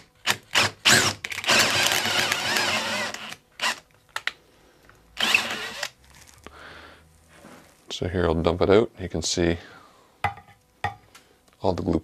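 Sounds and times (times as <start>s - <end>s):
cordless drill boring into wood: 0.3s - 3.8s, 5.2s - 5.9s.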